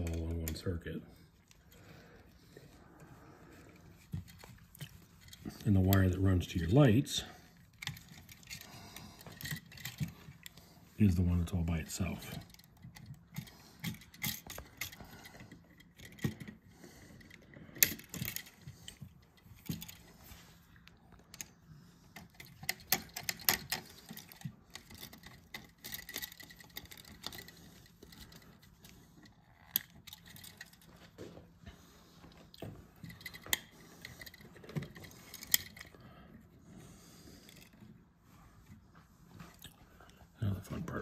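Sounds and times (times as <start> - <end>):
small metal clicks and clinks: 12.2 - 16.6, 22.2 - 31.0.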